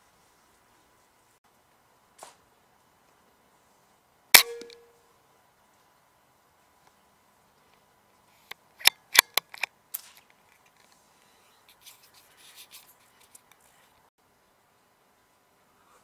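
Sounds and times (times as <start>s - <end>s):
sharp rifle clicks: 4.4s - 4.8s, 8.5s - 10.4s.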